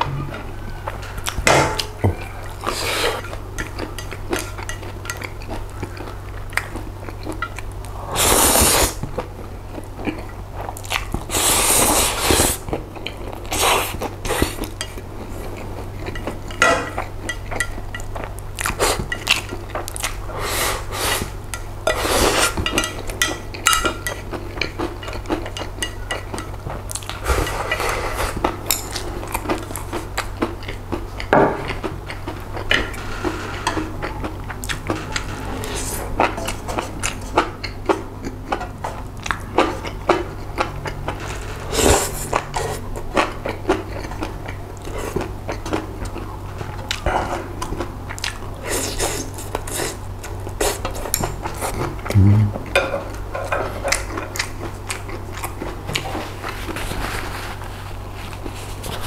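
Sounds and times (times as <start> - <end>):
chewing: 0.3 - 59.0
noodle slurping: 8.0 - 9.0.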